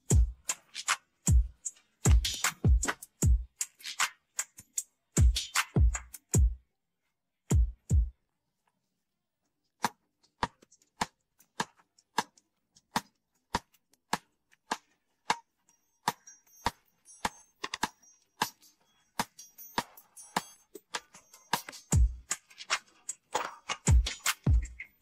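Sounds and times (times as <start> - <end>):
sharp rhythmic clicks: 10.4 - 25.0
faint high ringing tones: 15.4 - 22.0.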